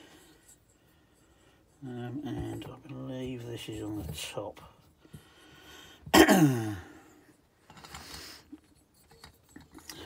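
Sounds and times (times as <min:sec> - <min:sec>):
man clearing his throat: 0:06.1 - 0:07.0.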